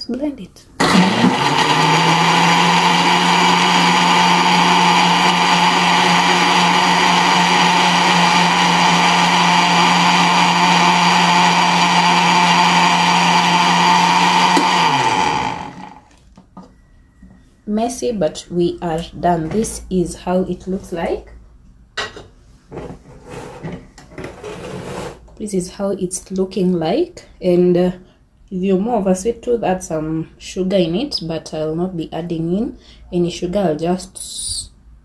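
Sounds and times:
blender running: 0.8 - 16.2.

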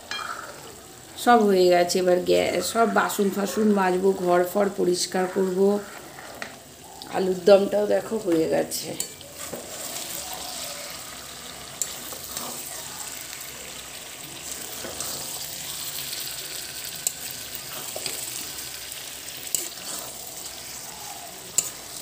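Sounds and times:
potatoes sizzling in a metal pan: 0.0 - 22.0
metal spatula stirring: 5.8 - 6.6, 8.3 - 13.5, 14.3 - 22.0.

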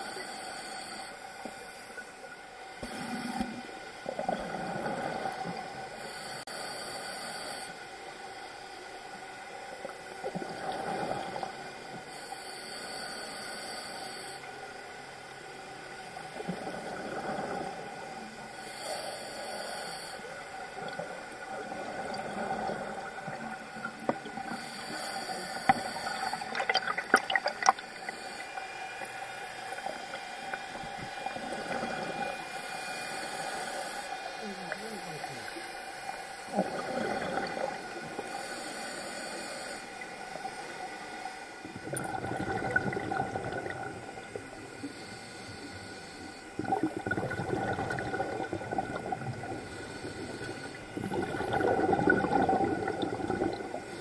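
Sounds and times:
scuba regulator inhalation hiss: 0.0 - 2.2, 5.8 - 8.4, 11.9 - 15.3, 18.4 - 20.5, 23.7 - 41.7, 44.3 - 46.6, 49.4 - 51.0
faint steady whine: 0.0 - 54.0
exhaled bubbles rushing: 26.3 - 27.9, 36.5 - 37.9, 41.7 - 44.3, 46.6 - 49.7, 51.0 - 53.9.

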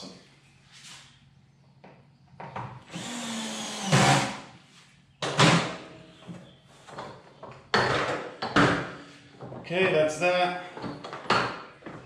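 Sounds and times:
cordless screwdriver whirring: 2.9 - 4.3.

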